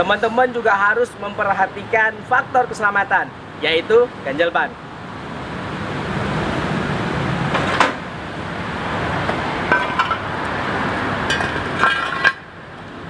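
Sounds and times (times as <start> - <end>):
outdoor background noise: 0.0 - 13.0
metal wheel chock clanking: 9.6 - 10.5, 11.2 - 12.6.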